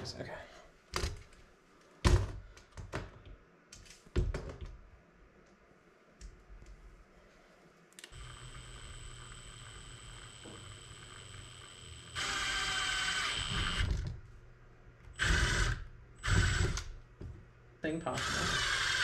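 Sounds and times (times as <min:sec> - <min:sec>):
cordless drill running: 0:08.1 - 0:14.0, 0:15.2 - 0:16.9, 0:18.1 - 0:19.0.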